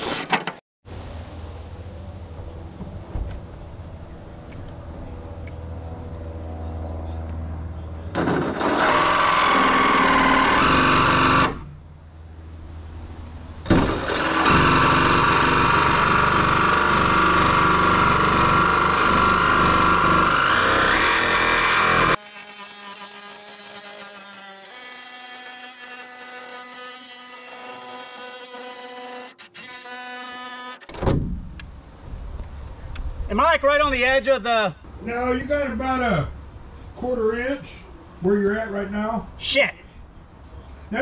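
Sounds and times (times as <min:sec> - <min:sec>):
cordless drill boring into metal: 0:08.2 - 0:11.6, 0:13.7 - 0:30.8.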